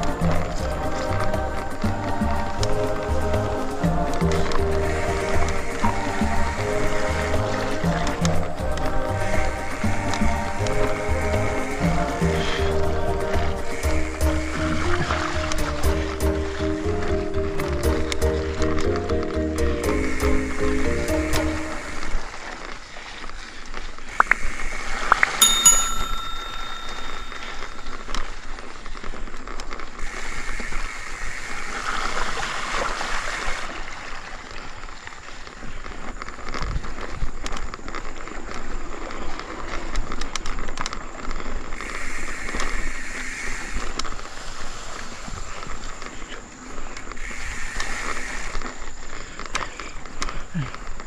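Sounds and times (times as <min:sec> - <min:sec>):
bike tyres rolling on dirt: 0:00.0 - 0:25.5, 0:27.9 - 0:51.0
bell-like ring: 0:25.4 - 0:28.4.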